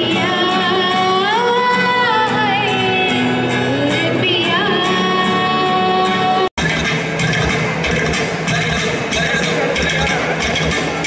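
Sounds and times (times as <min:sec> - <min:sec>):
woman singing into microphone: 0:00.0 - 0:06.5
acoustic guitar: 0:00.0 - 0:11.0.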